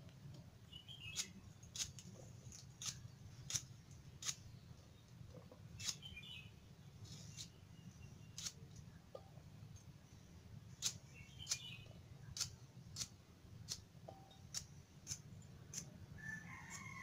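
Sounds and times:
blade cutting stalks clicks: 1.1 - 4.4, 12.3 - 13.9, 14.5 - 15.9.

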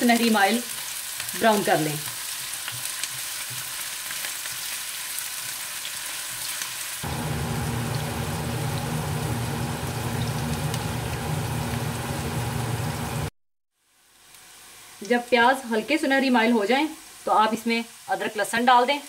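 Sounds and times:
onions sizzling in oil: 0.0 - 19.0
steady low hum: 7.0 - 13.3.

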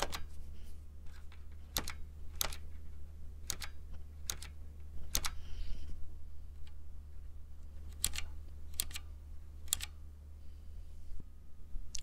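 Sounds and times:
mechanical keyboard key clicks: 1.7 - 2.6, 3.5 - 5.4, 7.9 - 9.0, 9.7 - 9.9.

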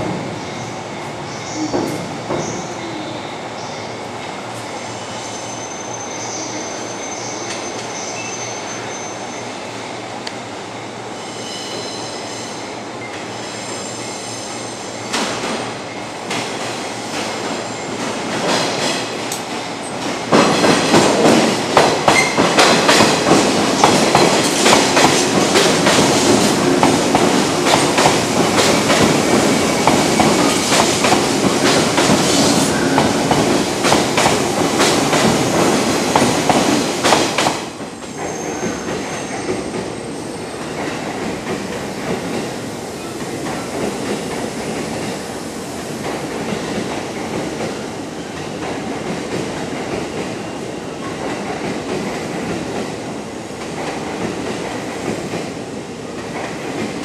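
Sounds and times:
electric train rolling past: 0.0 - 57.0
slow train rumbling: 0.0 - 57.0
train wheels clacking over rail joints: 16.3 - 39.9.

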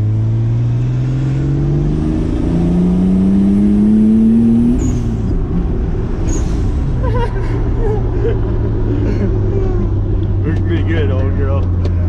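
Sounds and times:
truck engine accelerating: 0.0 - 12.0.

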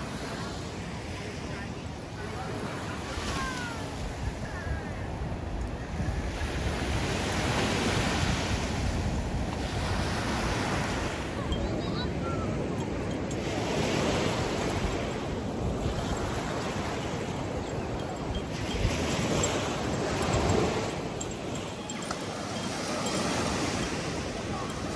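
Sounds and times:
ocean surf washing on beach: 0.0 - 24.9
wind rumbling on microphone: 3.4 - 24.9.

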